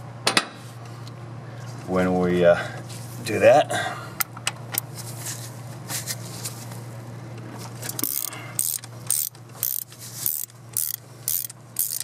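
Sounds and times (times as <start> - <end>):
steady low hum: 0.0 - 12.0
ratchet clicking: 7.9 - 12.0.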